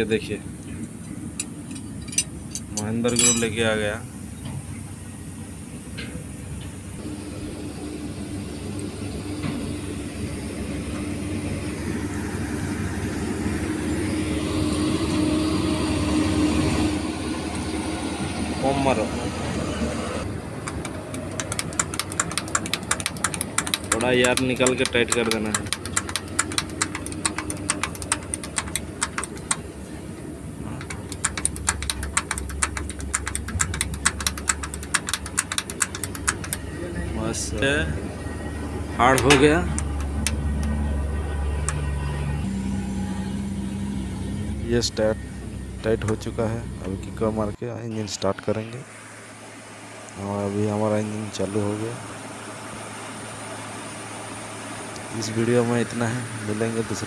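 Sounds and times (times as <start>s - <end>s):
engine humming: 0.0s - 57.0s
spanner clicking on metal nuts: 0.8s - 3.6s, 20.6s - 29.6s, 30.8s - 36.7s.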